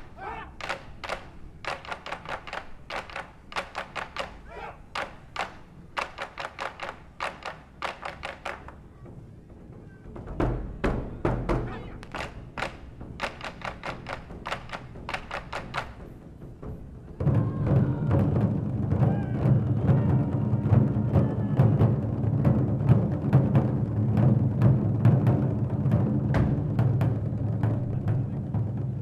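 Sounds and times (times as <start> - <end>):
deep drum booms: 10.1 - 13.5, 16.4 - 29.0.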